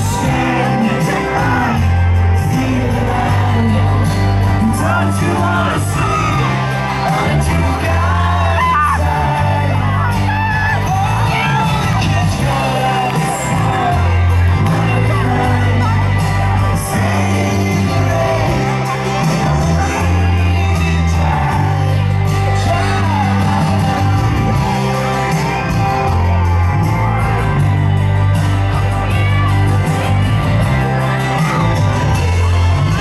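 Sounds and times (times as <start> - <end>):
man singing into a microphone: 0.0 - 24.6
amplified band backing with bass: 0.0 - 33.0
fans shouting and screaming: 0.0 - 33.0.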